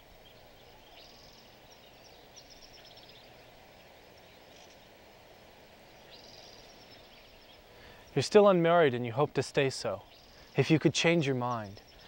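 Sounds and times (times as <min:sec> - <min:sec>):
low steady hiss: 0:00.0 - 0:12.0
small birds twittering: 0:00.0 - 0:12.0.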